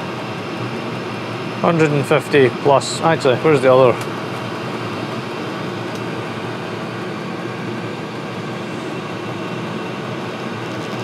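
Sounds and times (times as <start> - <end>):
diesel air heater rushing: 0.0 - 11.0.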